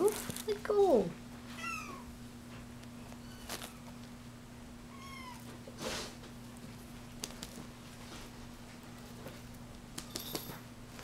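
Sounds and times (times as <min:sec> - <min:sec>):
kittens mewing: 0:01.6 - 0:02.1, 0:04.9 - 0:05.6.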